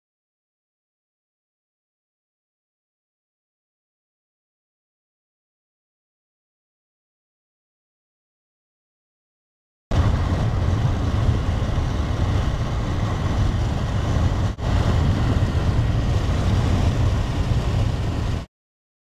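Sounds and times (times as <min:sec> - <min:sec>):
car road noise: 0:09.9 - 0:18.5
wind buffeting microphone: 0:09.9 - 0:18.5.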